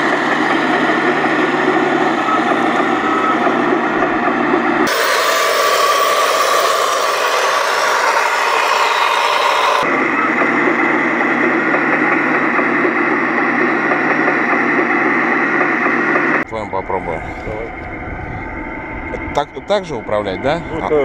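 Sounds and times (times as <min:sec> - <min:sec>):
model tank motor droning: 0:04.9 - 0:09.8.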